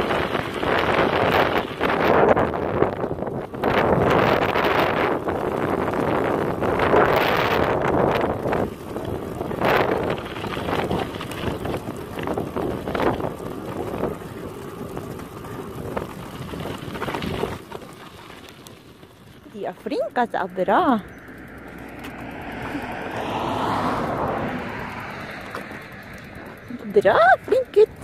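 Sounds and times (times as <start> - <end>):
bicycle rolling on gravel: 0.0 - 28.0
wind buffeting microphone: 0.0 - 28.0.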